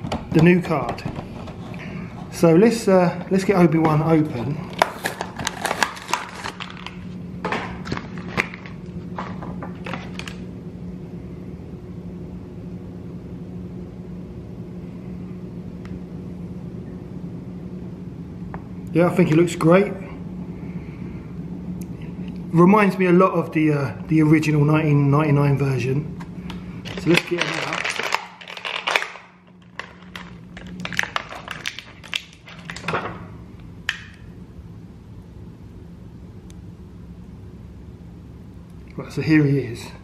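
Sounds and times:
low mechanical hum: 0:00.0 - 0:40.0
plastic packaging crinkling: 0:04.7 - 0:10.4, 0:26.8 - 0:33.1.

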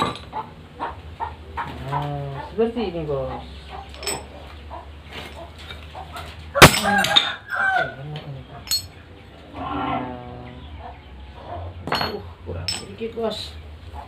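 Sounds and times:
chicken clucking: 0:00.3 - 0:11.8
steel pieces clinking on steel block: 0:03.9 - 0:04.3, 0:06.6 - 0:07.4, 0:08.6 - 0:09.0, 0:11.8 - 0:13.0.

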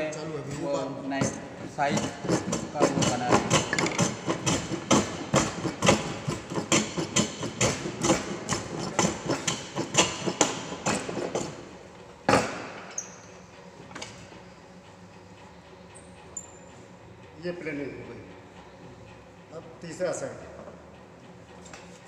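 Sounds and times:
plane shaving wood: 0:00.8 - 0:12.7
loud wooden knock: 0:12.3 - 0:12.8.

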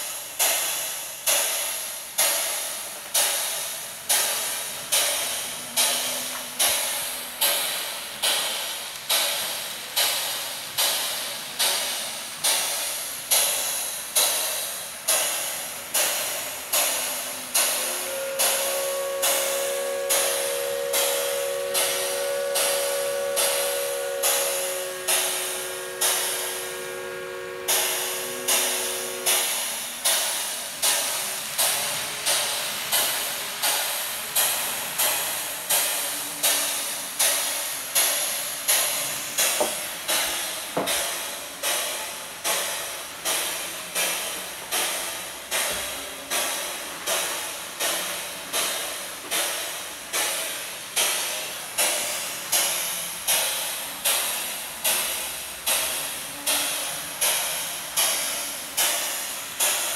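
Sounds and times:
steam locomotive chuffing: 0:00.0 - 0:59.9
held chord of steady tones: 0:17.0 - 0:29.9.

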